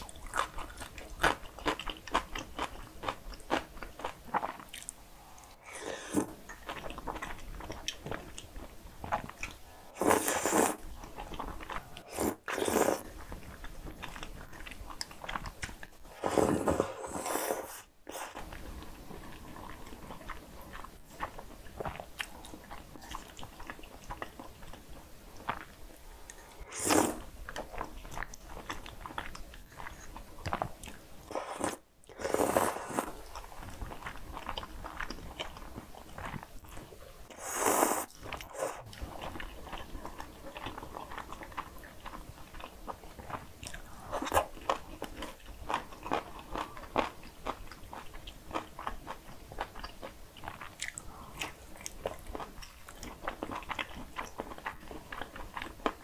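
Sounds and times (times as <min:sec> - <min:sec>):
slurping noodles: 0:05.6 - 0:06.4, 0:09.9 - 0:10.8, 0:11.9 - 0:13.1, 0:16.1 - 0:18.4, 0:26.4 - 0:27.3, 0:31.3 - 0:33.3, 0:37.3 - 0:38.9
chewing with wet clicks: 0:27.5 - 0:31.1, 0:38.1 - 0:56.0.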